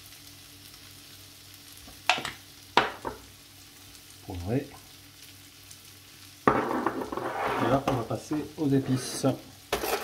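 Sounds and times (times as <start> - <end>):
vegetables sizzling in a pan: 0.0 - 10.0
knocks on wooden worktop: 6.5 - 7.2.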